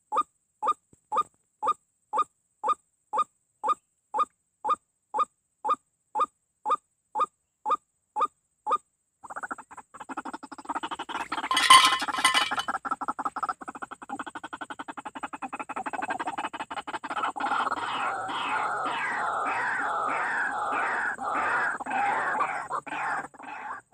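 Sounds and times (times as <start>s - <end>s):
bird chattering: 9.3s - 23.9s
waterhen calls: 9.4s - 13.5s, 15.9s - 23.9s
wings flapping: 11.1s - 12.7s
metal can rattling: 11.2s - 12.7s.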